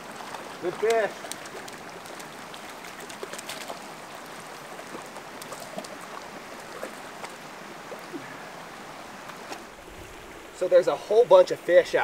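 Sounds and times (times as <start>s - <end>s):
fish splashing in water: 0.0s - 8.1s.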